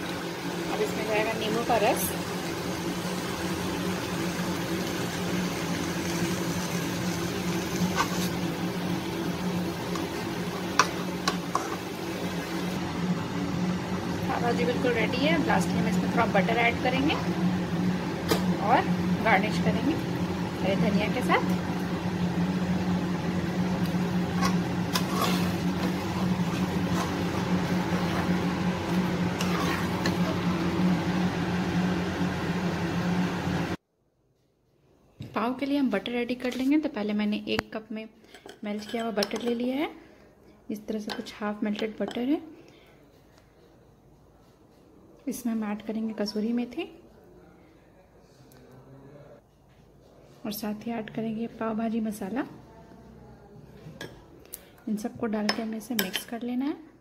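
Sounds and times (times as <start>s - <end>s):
low motor hum: 0.0s - 33.8s
spatula scraping metal pan: 7.8s - 8.4s, 24.3s - 30.4s.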